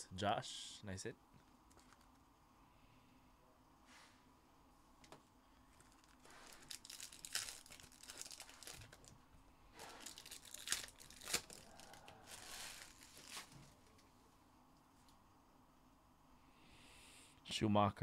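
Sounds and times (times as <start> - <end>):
foil wrapper crinkling: 5.8 - 9.2, 9.8 - 13.6.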